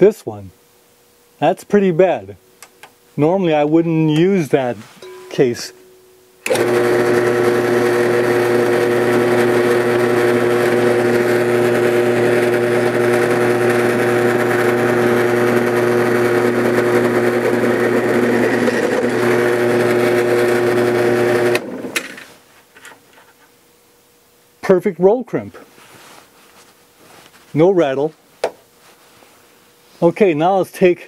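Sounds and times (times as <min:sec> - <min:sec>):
motor winding down: 0:06.4 - 0:22.0
drill press motor running: 0:06.4 - 0:22.1.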